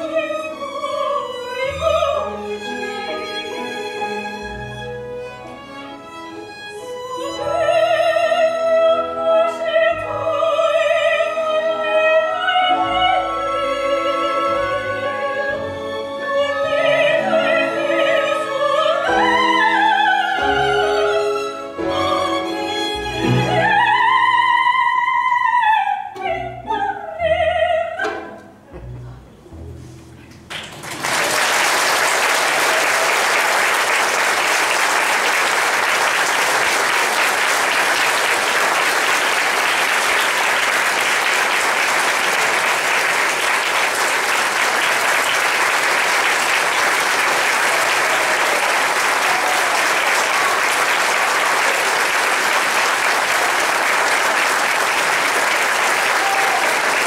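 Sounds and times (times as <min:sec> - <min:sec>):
soprano singing: 0:00.0 - 0:29.2
orchestra playing: 0:00.0 - 0:30.6
audience applause: 0:30.5 - 0:57.0.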